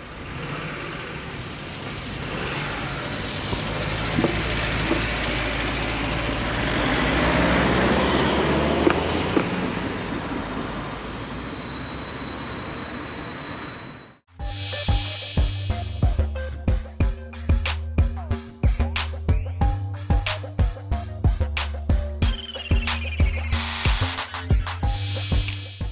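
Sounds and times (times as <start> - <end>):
cars passing: 0.0 - 14.2.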